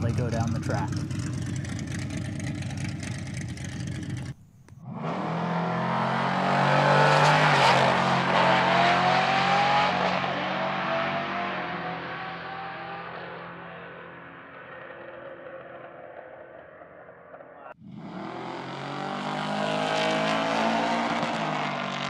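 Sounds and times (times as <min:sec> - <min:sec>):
rough-running engine: 0:00.0 - 0:05.0
race car accelerating: 0:00.0 - 0:22.0.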